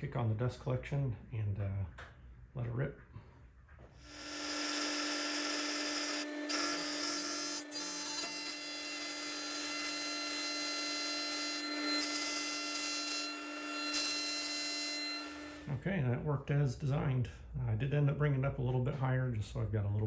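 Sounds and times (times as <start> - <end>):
table saw whine: 4.0 - 15.7
dust collector hum: 4.1 - 15.8.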